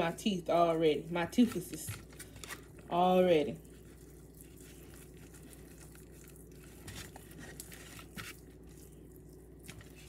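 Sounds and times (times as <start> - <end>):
steady low hum: 0.0 - 10.0
hands rubbing raw meat: 3.4 - 10.0.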